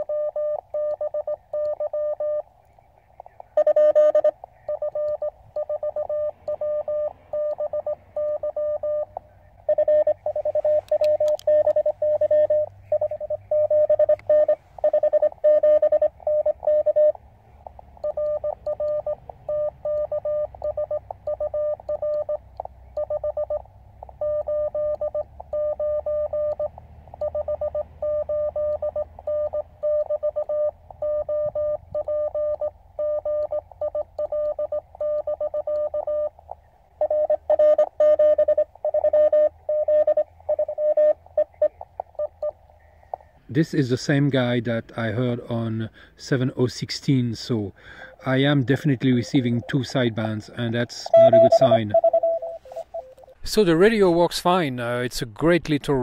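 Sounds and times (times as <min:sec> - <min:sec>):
morse code tone: 0:00.0 - 0:42.6, 0:48.4 - 0:53.7.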